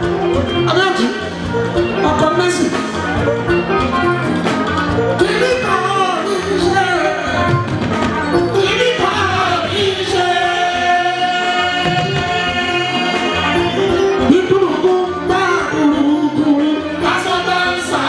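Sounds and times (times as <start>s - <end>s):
band accompaniment: 0.0s - 18.0s
man singing: 5.2s - 7.6s, 8.5s - 18.0s.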